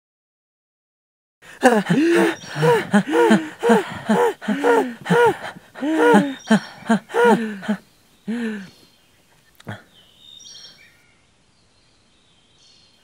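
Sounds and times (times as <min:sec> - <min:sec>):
person vocalizing sing-song syllables: 0:01.5 - 0:08.7.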